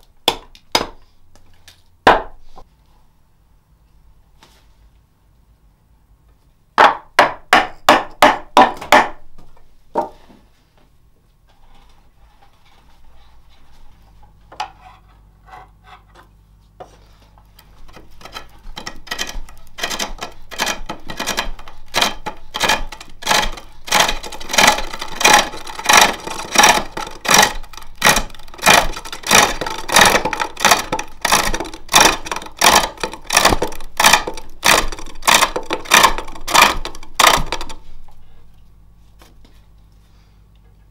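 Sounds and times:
sharp knocks: 6.8 - 9.2
lathe tool scraping wood: 18.1 - 37.8.

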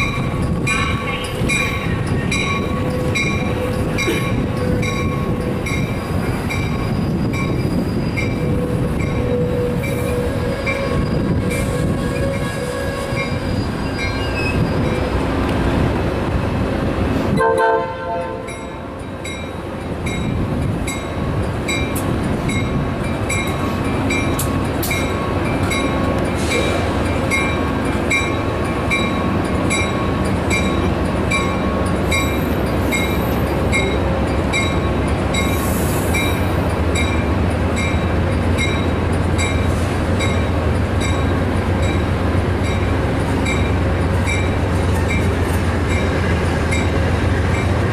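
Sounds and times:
train wheels and diesel rumble: 0.0 - 47.9
train horn note: 17.4 - 18.6.

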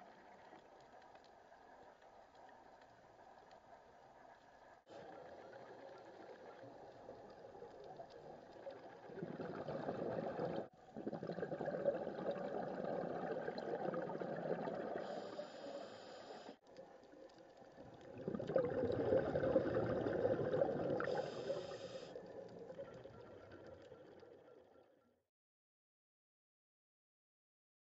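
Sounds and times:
underwater air bubbling: 5.0 - 24.8.

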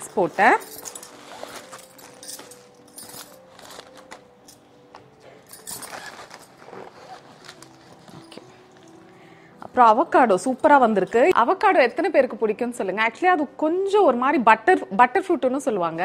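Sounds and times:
soft background music: 0.0 - 16.0
plastic packets rustling: 0.2 - 9.0.

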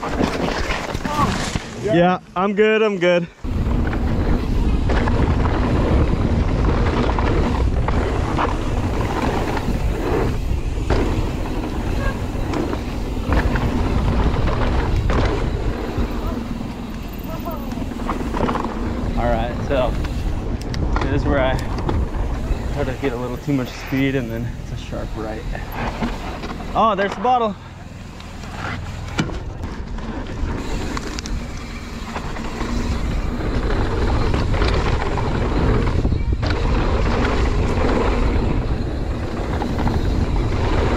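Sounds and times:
bike knocking and rattling: 0.0 - 2.8, 3.4 - 40.9
tyres rolling on dirt: 0.0 - 40.9
wind rumbling on microphone: 3.4 - 26.8, 27.9 - 40.9.

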